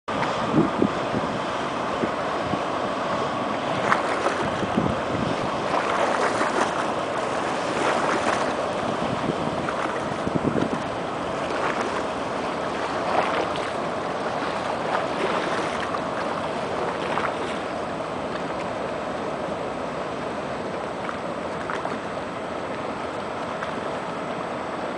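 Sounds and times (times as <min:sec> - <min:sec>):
motor yacht engine and wake: 0:00.0 - 0:24.9
wind on microphone: 0:00.1 - 0:16.0
water splashing: 0:00.1 - 0:24.9.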